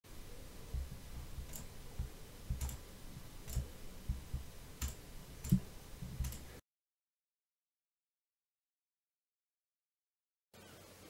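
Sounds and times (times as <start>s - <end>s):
computer mouse clicks: 0.7s - 6.6s.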